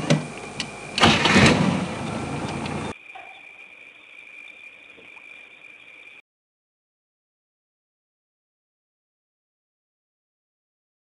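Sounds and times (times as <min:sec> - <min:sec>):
vehicle engine and rattling: 0:00.0 - 0:02.9
steady high whine: 0:00.0 - 0:06.2.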